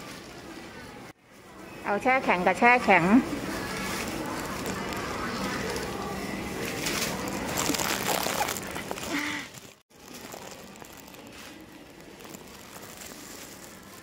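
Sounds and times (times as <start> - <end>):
plastic bags crinkling: 3.5 - 14.0.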